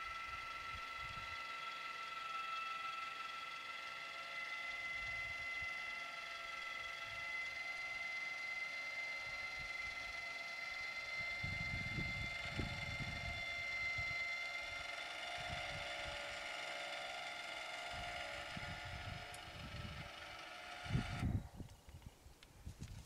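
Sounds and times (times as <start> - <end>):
electric motor whine: 0.0 - 23.0
wind buffeting microphone: 11.2 - 14.8, 17.9 - 20.1, 20.8 - 23.0.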